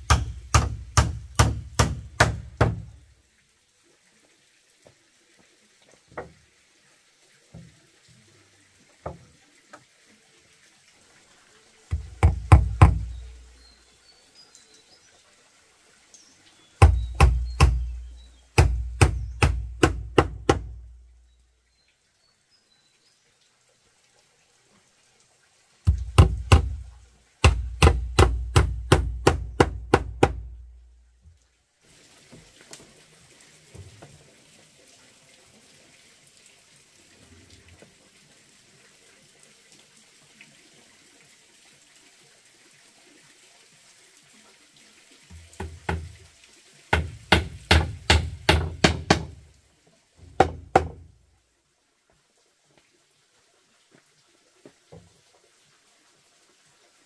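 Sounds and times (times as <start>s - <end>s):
hammering on wood: 0.0s - 3.0s, 11.9s - 13.3s, 16.8s - 18.0s, 18.6s - 20.8s, 25.9s - 26.8s, 27.4s - 30.6s, 45.4s - 46.2s, 46.9s - 49.4s, 50.3s - 51.1s
faint steady noise: 0.0s - 57.0s.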